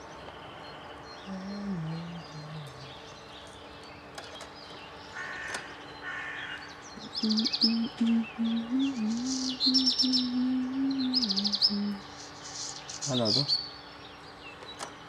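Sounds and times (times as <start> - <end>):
faint bird chirps: 0.0 - 3.6, 4.9 - 13.9
crow cawing: 5.2 - 6.6
low tone stepping down: 7.0 - 12.0.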